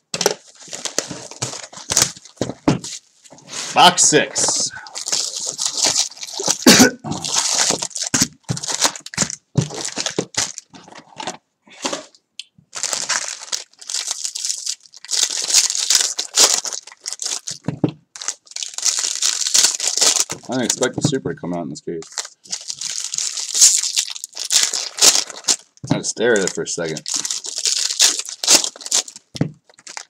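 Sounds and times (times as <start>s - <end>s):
foil packs crinkling: 0.2s - 3.1s, 4.0s - 11.2s, 12.7s - 20.9s, 22.0s - 30.0s
foil pack tearing open: 4.9s - 10.7s, 12.8s - 17.6s, 18.2s - 20.8s, 22.1s - 30.0s.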